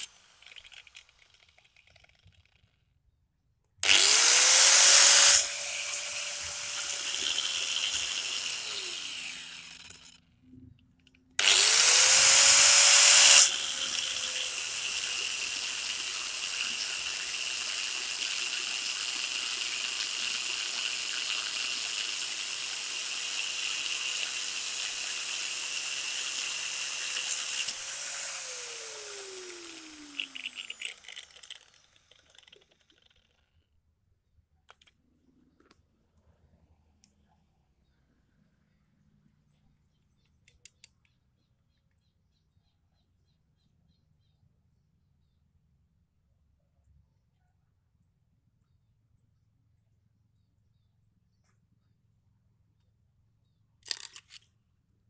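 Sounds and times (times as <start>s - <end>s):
angle grinder grinding metal: 0.0s - 2.6s, 3.8s - 10.2s, 11.4s - 33.4s
grinder motor whine spinning down: 3.8s - 10.2s, 11.4s - 18.5s, 23.5s - 33.3s.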